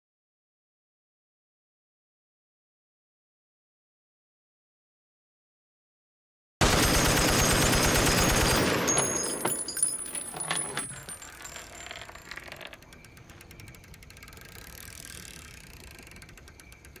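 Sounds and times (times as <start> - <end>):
light clinks and rattles: 8.5 - 17.0.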